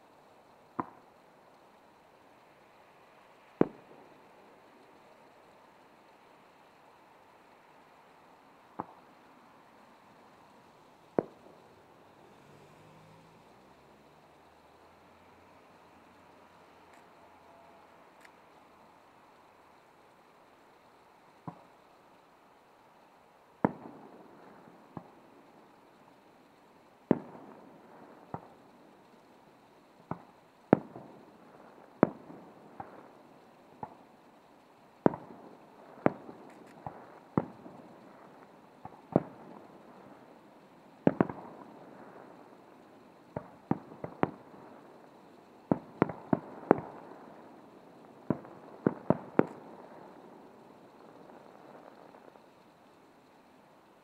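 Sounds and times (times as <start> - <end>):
fireworks bursting: 0.0 - 54.0.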